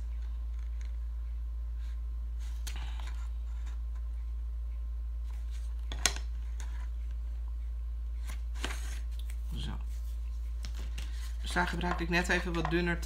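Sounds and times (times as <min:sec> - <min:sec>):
low electrical hum: 0:00.0 - 0:13.0
card and tape rustling: 0:10.5 - 0:13.0.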